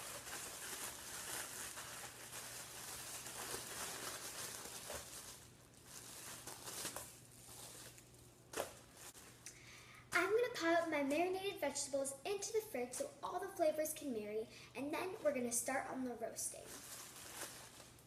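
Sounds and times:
plastic bag crinkling: 0.0s - 9.4s, 16.6s - 18.0s.

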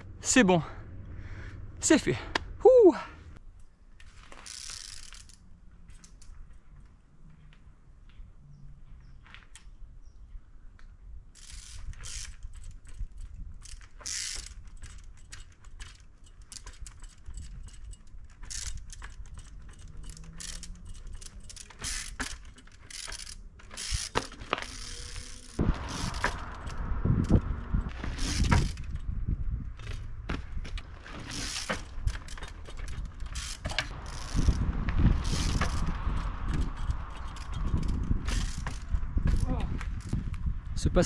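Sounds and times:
bicycle freewheel ratchet clicking: 4.3s - 5.4s, 11.4s - 29.2s, 31.1s - 40.2s.

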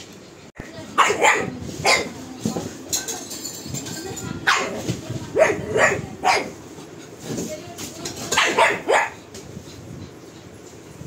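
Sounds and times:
dog barking sharply: 1.0s - 2.1s, 8.3s - 9.2s.

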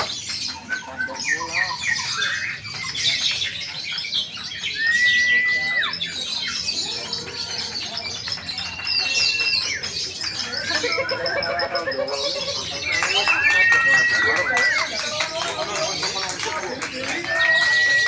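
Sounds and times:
lovebirds chattering and squawking: 0.0s - 18.0s.

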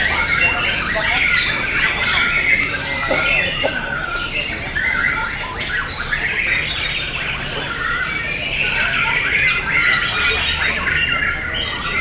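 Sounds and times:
chorus of songbirds singing: 0.0s - 12.0s.

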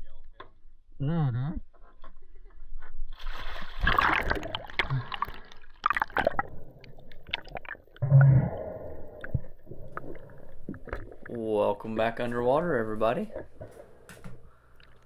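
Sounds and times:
underwater bubbling and gurgling: 3.8s - 11.4s.

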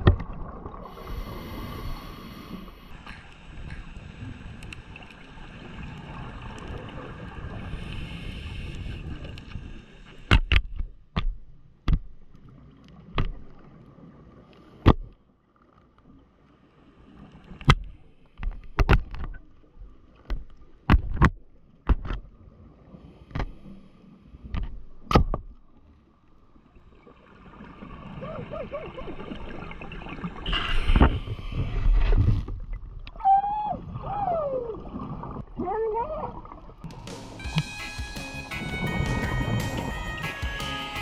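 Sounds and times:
underwater hiss: 0.8s - 6.2s, 7.5s - 10.3s.

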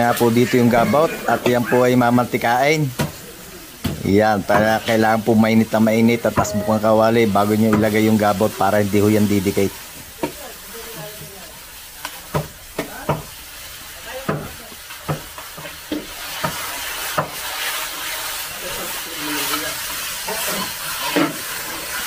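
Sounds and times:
fat sizzling in a wok: 0.0s - 22.0s
spatula scraping a pan: 15.2s - 22.0s.

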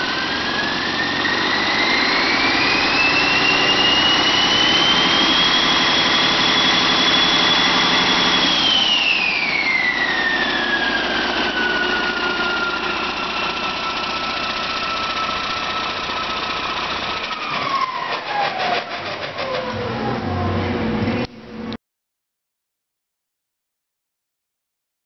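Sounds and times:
high whine: 0.0s - 18.6s
diesel engine running: 0.0s - 21.7s.

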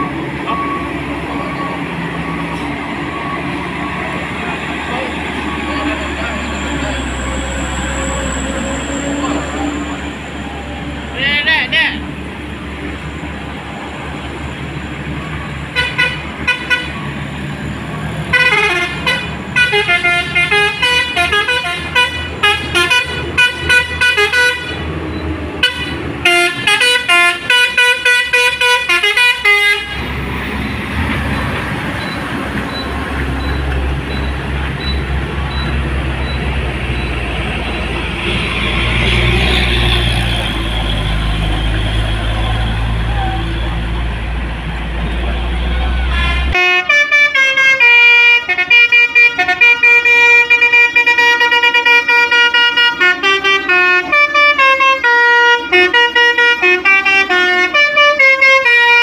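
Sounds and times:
diesel truck engine drone: 0.0s - 59.0s
musical truck horn tooting: 15.7s - 17.1s, 18.2s - 24.9s, 25.6s - 30.1s, 45.6s - 59.0s.

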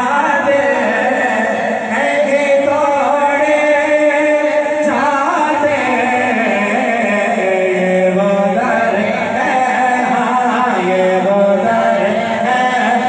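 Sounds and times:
men singing a chant in chorus: 0.0s - 13.0s.

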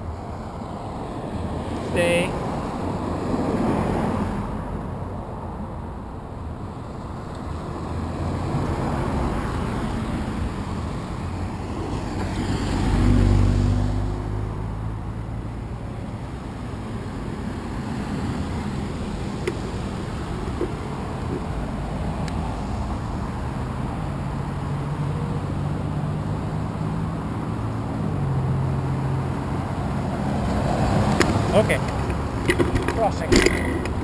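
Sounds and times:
road traffic passing: 0.0s - 34.0s
vehicle passing close: 7.0s - 34.0s.

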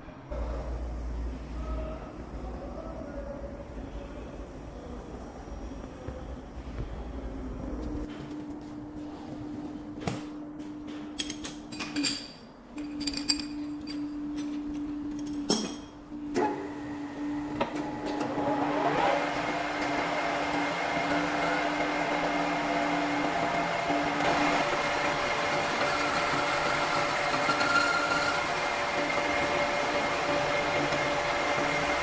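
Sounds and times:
metal clinks and knocks: 10.9s - 16.0s
lathe spindle running: 16.2s - 32.0s.

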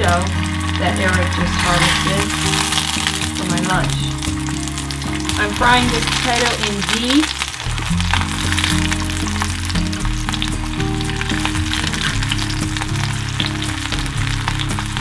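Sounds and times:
background music: 0.0s - 15.0s
potatoes sizzling in a pan: 0.0s - 15.0s.

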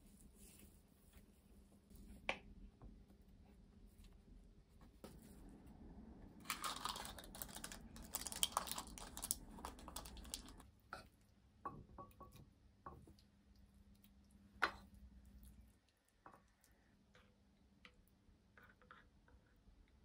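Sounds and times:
cling film and paper crinkling: 6.4s - 10.6s.

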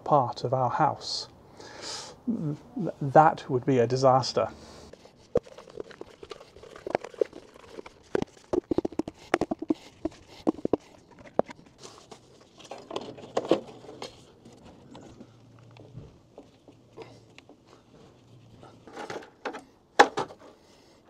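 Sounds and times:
plastic tube clicking and crinkling: 4.9s - 17.6s.

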